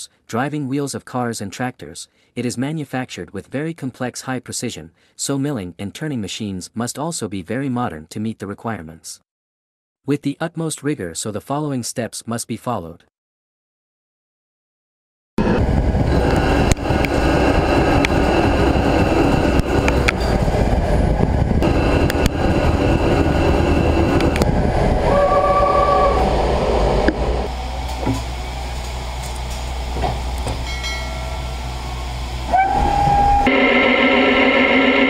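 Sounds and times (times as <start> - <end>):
brief machine whine: 30.6 - 35.0.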